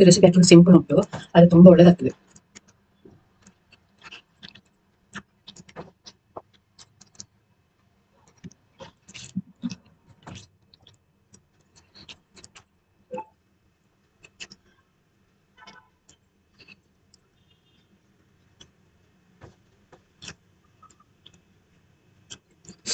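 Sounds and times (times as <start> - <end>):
chewing with wet smacks: 3.4 - 7.4, 8.2 - 13.3
fingers mixing rice on a plate: 3.4 - 7.4.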